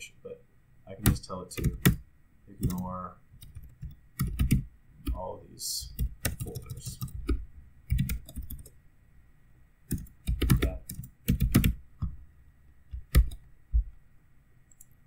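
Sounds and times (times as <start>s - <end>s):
computer keyboard typing: 1.0s - 2.0s, 2.6s - 5.2s, 5.9s - 8.7s, 9.9s - 12.1s, 12.9s - 13.4s.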